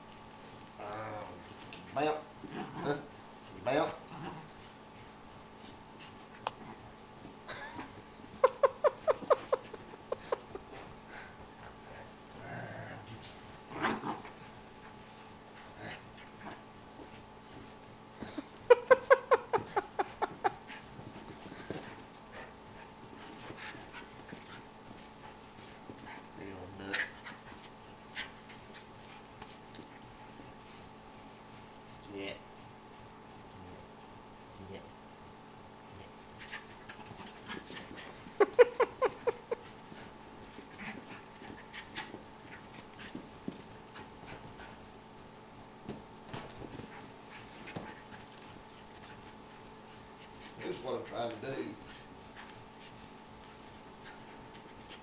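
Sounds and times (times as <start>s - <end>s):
dog panting: 36.2s - 45.0s, 46.6s - 55.0s.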